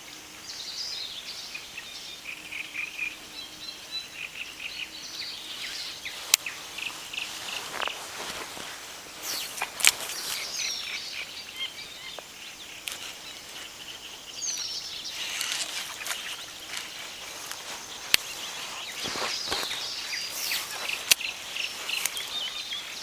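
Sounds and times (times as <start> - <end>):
bird calling: 0.0 - 23.0
rustling against microphone: 5.4 - 11.2, 12.8 - 23.0.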